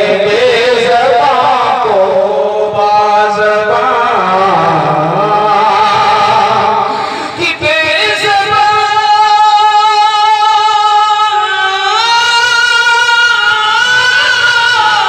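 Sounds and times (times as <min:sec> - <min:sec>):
man singing through loudspeaker: 0:00.0 - 0:15.0.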